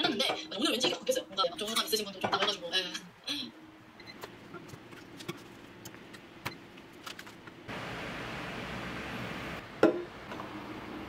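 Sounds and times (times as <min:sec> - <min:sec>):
electric desk fans running: 0:02.7 - 0:11.0.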